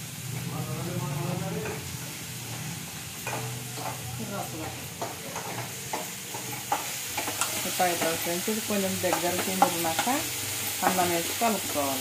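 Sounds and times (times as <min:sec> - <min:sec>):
liquid sizzling in a pan: 0:00.0 - 0:12.0
spoon scraping a pan: 0:02.5 - 0:11.0.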